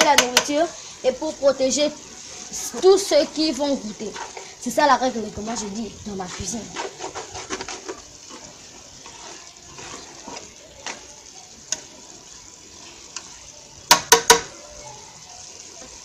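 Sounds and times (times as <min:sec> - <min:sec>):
spoon stirring in a metal pot: 0:00.0 - 0:01.0, 0:01.9 - 0:11.9
steady hiss: 0:00.0 - 0:16.0.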